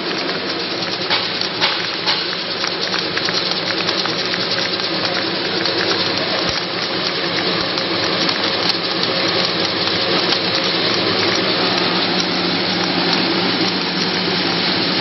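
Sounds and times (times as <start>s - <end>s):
electric motor hum: 0.0s - 15.0s.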